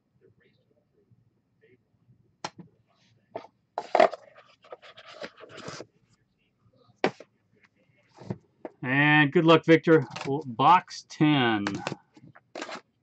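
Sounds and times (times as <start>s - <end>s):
rough scraping of cards: 12.5s - 13.0s.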